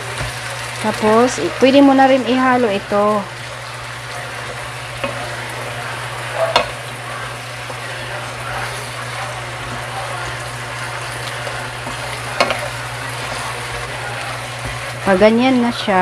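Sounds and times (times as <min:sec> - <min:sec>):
food sizzling in a wok: 0:00.0 - 0:16.0
spatula knocking against pan: 0:06.5 - 0:06.8, 0:12.4 - 0:12.7.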